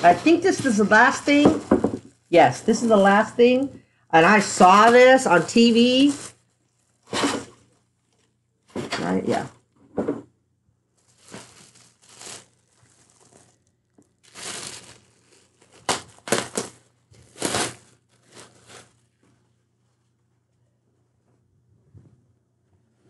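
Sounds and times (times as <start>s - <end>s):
plastic bag crinkling: 0.0s - 3.6s, 4.2s - 9.8s, 10.9s - 19.3s.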